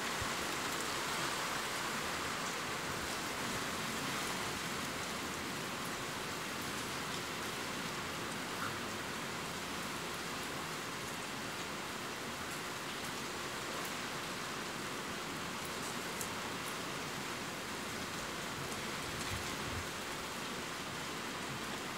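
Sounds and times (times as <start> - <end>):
steady rain hiss: 0.0 - 21.9.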